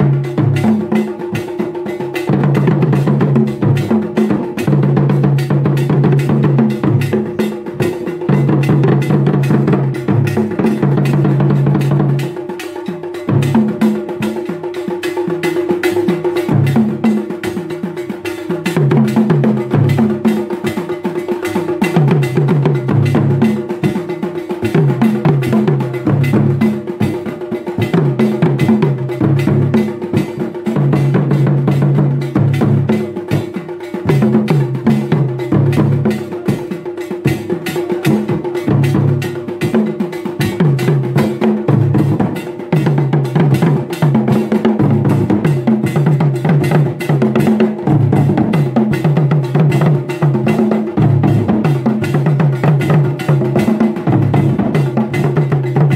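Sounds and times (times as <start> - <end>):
standing drums: 0.0 - 55.9
talking drums: 0.0 - 55.9.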